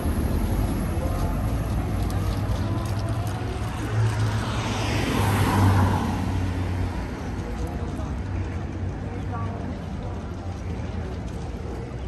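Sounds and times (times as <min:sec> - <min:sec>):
car passing by: 0:00.0 - 0:07.7
low traffic hum: 0:00.0 - 0:12.0.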